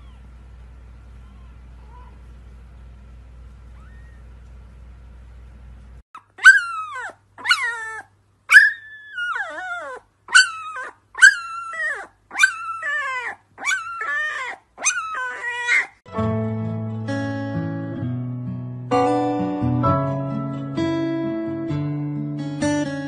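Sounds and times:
puppy howling: 3.7s - 4.2s, 6.3s - 16.0s.

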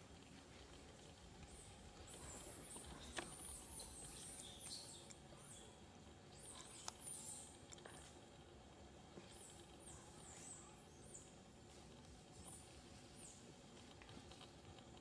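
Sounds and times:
background hiss: 0.0s - 15.0s
bird chirping: 1.4s - 8.1s.

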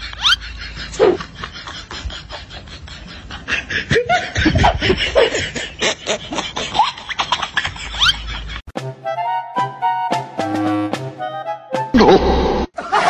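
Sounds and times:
person laughing in bursts: 0.0s - 8.6s, 12.0s - 13.0s.

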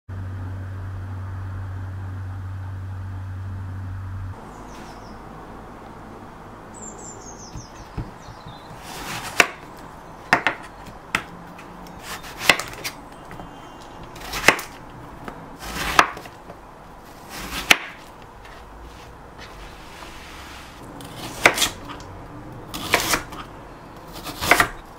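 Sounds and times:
knife knocking on chopping board: 7.5s - 8.8s.

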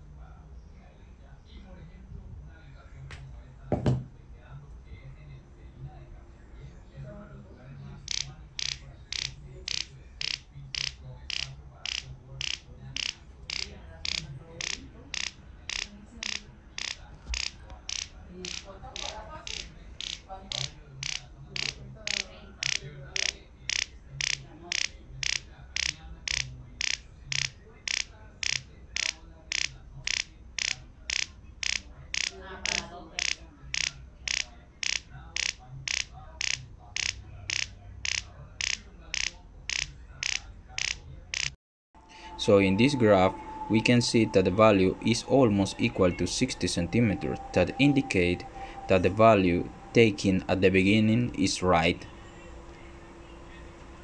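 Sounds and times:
high-pitched sonar pulses: 41.4s - 53.3s.

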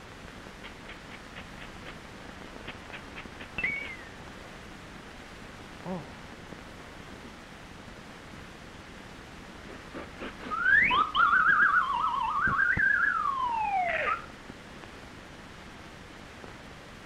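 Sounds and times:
cartoon slide whistle: 10.4s - 14.3s.

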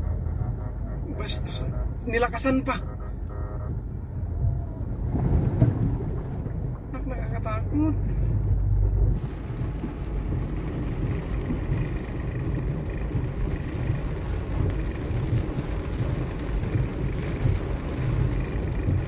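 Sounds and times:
car engine rumble: 0.0s - 19.0s
water rushing against car: 4.3s - 19.0s.

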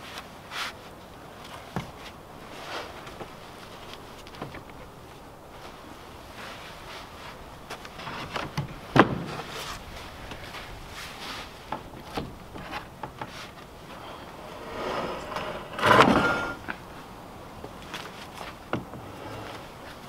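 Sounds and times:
scraping rustle of wood: 0.0s - 20.0s.

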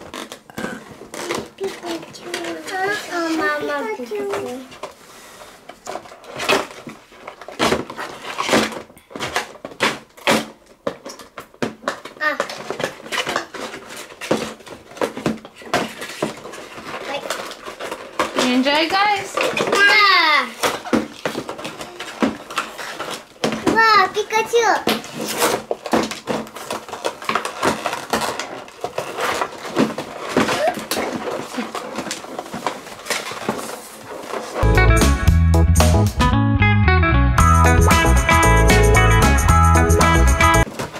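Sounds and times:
box scrapes rustles and knocks: 0.0s - 10.5s, 24.9s - 34.7s
cardboard and plastic packaging tearing: 0.0s - 34.6s, 40.6s - 40.9s.

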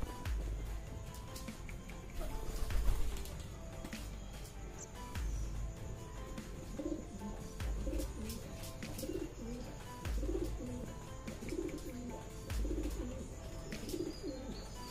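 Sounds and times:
background music with deep pulse: 0.0s - 14.9s
pigeons cooing: 1.2s - 3.4s, 6.6s - 14.9s.

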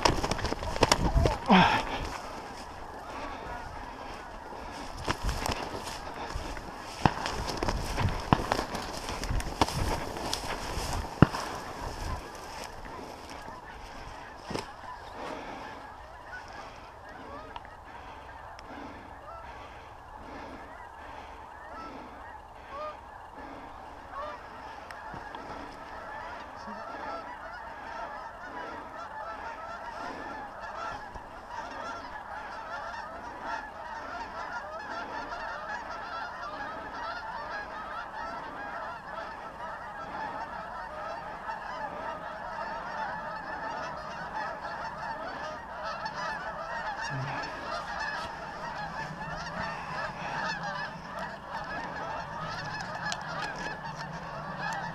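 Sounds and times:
geese honking: 0.0s - 54.9s.

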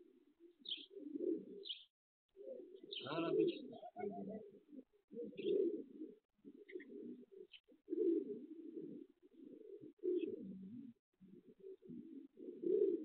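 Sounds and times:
pigeons cooing: 0.0s - 13.0s
small bird chirps: 0.6s - 0.9s, 1.6s - 1.9s.

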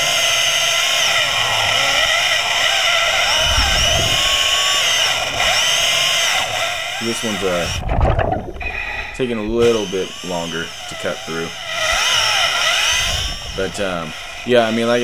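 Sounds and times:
chainsaw whining underwater: 0.0s - 15.0s.

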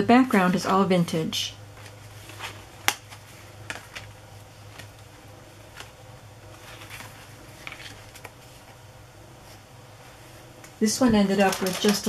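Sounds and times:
faint low hum: 0.0s - 12.0s
paper rustling and tapping: 1.8s - 5.1s, 5.7s - 8.8s, 11.0s - 12.0s.

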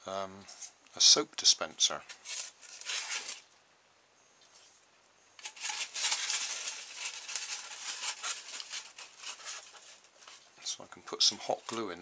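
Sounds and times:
hands rubbing polystyrene foam: 2.1s - 3.4s, 5.4s - 10.5s, 11.2s - 12.0s.

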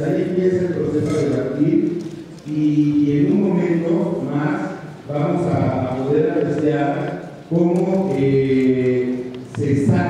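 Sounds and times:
man chanting: 5.2s - 10.0s.

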